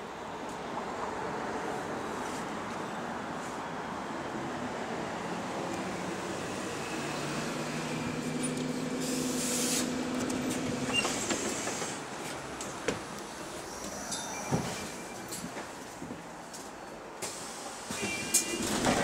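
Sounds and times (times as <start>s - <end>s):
compressed air hiss: 9.0s - 10.0s.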